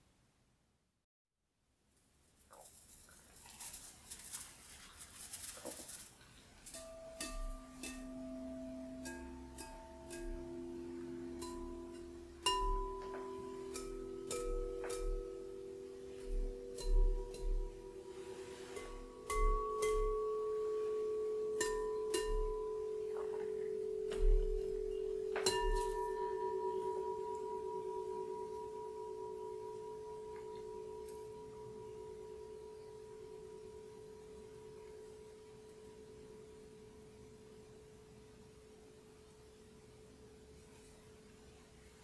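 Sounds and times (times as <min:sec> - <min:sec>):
high bowl ring: 0:06.7 - 0:38.0
low singing bowl tone: 0:06.8 - 0:38.2
singing bowl taps: 0:24.1 - 0:26.7.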